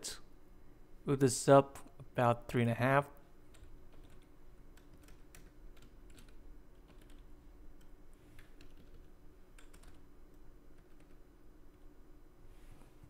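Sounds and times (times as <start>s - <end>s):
computer keyboard keystrokes: 3.5s - 10.1s, 10.8s - 11.8s.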